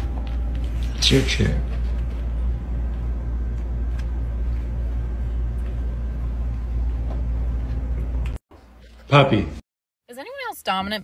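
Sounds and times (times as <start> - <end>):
steady low rumble: 0.0 - 8.4.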